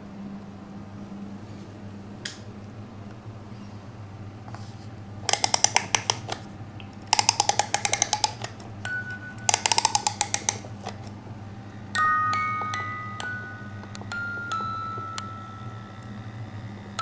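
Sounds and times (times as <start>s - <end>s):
rapid ratchet clicks: 5.3s - 6.4s, 7.1s - 8.6s, 9.5s - 11.1s
music box note: 11.9s - 16.1s.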